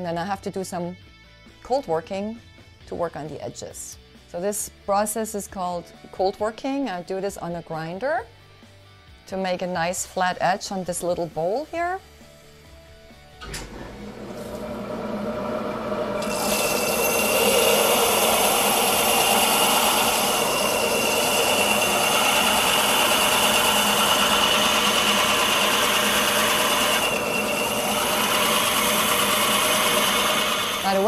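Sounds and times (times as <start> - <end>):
glass grinding on spinning disc: 16.2 - 31.0.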